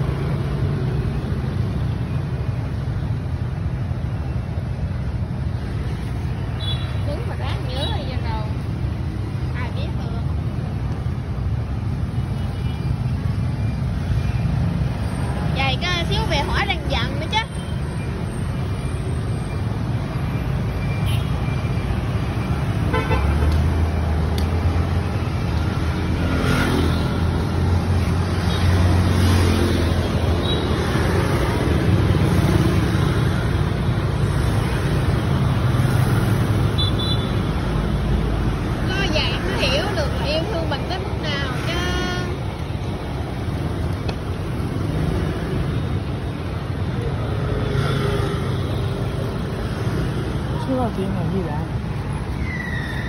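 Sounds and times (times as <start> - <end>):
motorbikes and cars passing: 0.0 - 53.0
scooters passing close by: 24.6 - 36.7.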